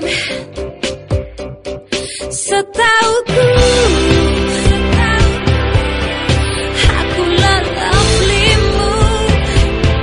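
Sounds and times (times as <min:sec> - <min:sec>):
pop music with steady beat: 0:00.0 - 0:10.0
person singing: 0:02.4 - 0:09.7.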